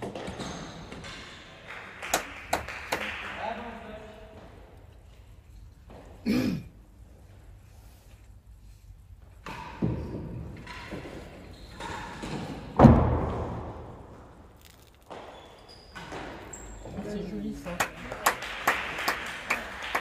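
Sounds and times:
ball thudding off rackets and walls: 9.4 - 16.5.

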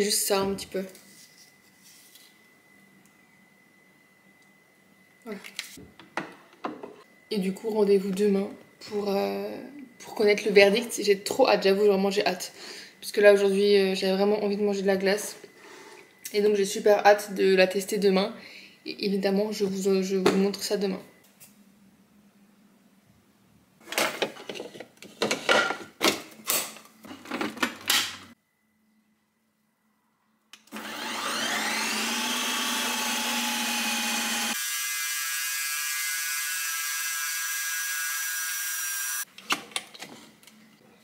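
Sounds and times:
ice cream maker motor whining: 30.7 - 39.2.

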